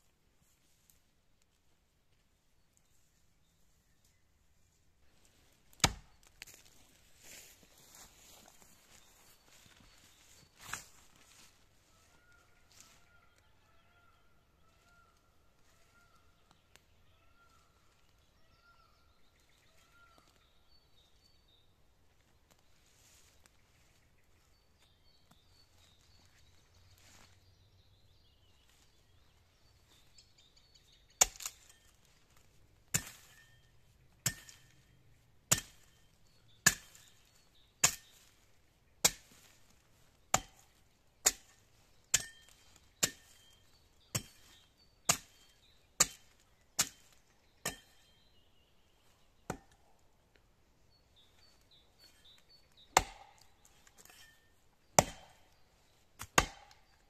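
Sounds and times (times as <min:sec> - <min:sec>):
axe chopping wood: 0:05.8 - 0:06.1, 0:31.2 - 0:31.7, 0:33.0 - 0:33.5, 0:34.2 - 0:34.8, 0:35.5 - 0:36.0, 0:36.6 - 0:38.3, 0:39.0 - 0:39.6, 0:40.3 - 0:48.1, 0:49.5 - 0:49.8, 0:52.9 - 0:55.6, 0:56.2 - 0:57.0.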